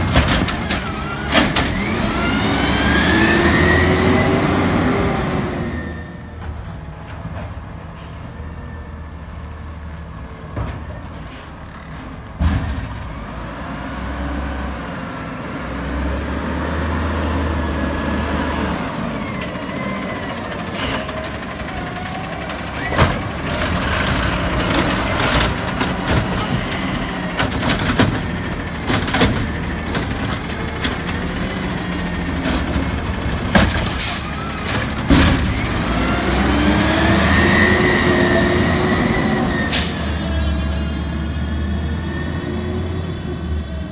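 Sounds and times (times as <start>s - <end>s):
hydraulic arm clanking and knocking: 0.0s - 2.4s, 20.5s - 36.5s
garbage truck engine running: 18.1s - 43.9s.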